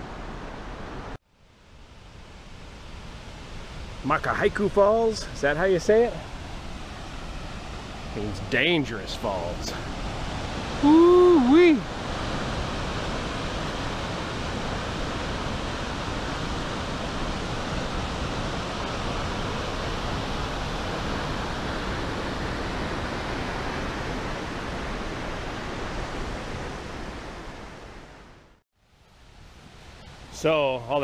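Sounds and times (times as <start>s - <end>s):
waterfall roar: 3.7s - 27.8s.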